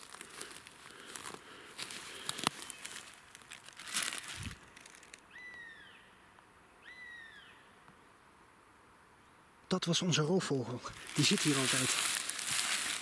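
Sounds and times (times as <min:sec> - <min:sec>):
foil balloon rustling: 0:00.0 - 0:00.8, 0:10.9 - 0:13.0
bird of prey crying: 0:05.2 - 0:06.2, 0:06.8 - 0:07.7.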